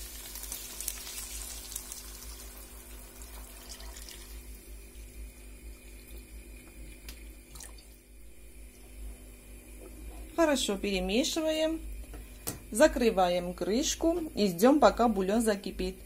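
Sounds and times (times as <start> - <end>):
liquid pouring into pan: 0.2 - 8.1.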